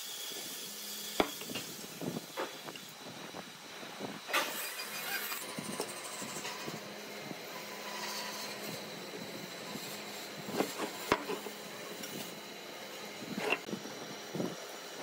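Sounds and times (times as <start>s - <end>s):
wood lathe motor hum: 4.3s - 15.0s.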